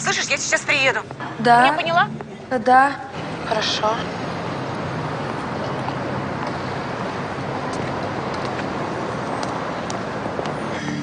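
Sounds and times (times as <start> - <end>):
road traffic hum: 0.0 - 11.0.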